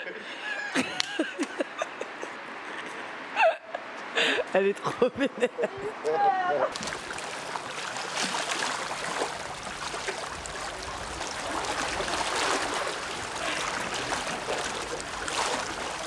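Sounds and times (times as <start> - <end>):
small waves sloshing among rocks: 6.7 - 16.0
water splashing at the edge: 6.7 - 16.0.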